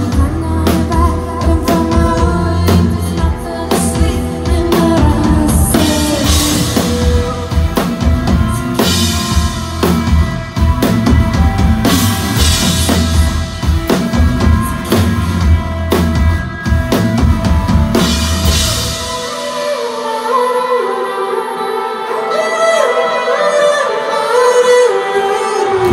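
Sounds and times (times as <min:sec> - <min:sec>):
bass guitar: 0:00.0 - 0:19.4
drum kit played hard: 0:00.0 - 0:20.1
electric guitar: 0:00.0 - 0:25.9.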